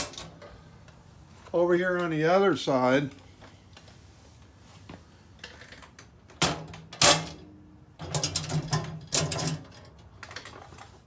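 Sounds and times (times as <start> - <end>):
metal door rattling and clanking: 8.0 - 10.0.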